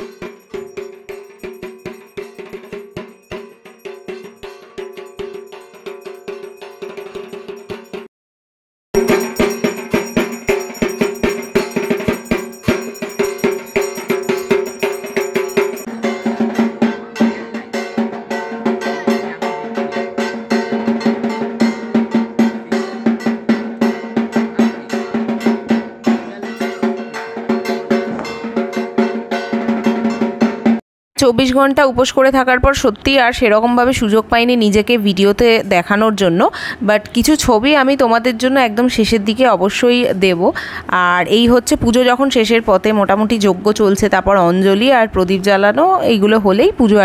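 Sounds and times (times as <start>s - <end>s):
high metallic shimmer: 0.0s - 8.0s, 9.0s - 17.9s
drums beaten fast: 0.0s - 8.1s, 9.0s - 36.4s
steady ringing tone: 0.0s - 8.1s, 9.0s - 29.0s.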